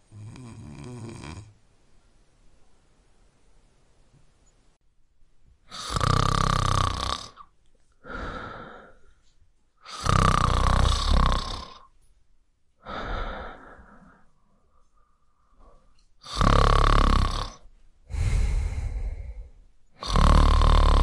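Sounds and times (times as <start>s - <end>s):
man snoring: 0.1s - 1.5s, 5.7s - 7.5s, 9.8s - 11.8s, 16.2s - 21.0s
quiet breath: 7.8s - 10.0s, 12.8s - 16.4s, 17.6s - 21.0s.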